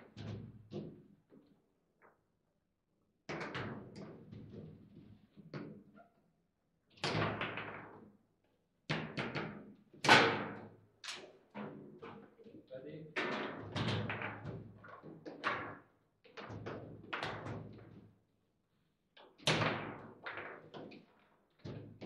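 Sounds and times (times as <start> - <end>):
foosball clacks and rattles: 13.2 - 15.7.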